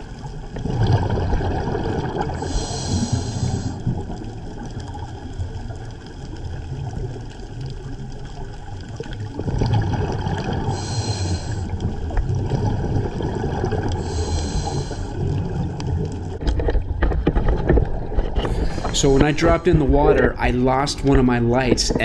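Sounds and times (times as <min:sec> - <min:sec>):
exhaled bubbles gurgling: 0:00.0 - 0:22.0
diver breathing through regulator: 0:02.2 - 0:04.0, 0:10.6 - 0:11.9, 0:13.9 - 0:15.4, 0:18.4 - 0:19.4.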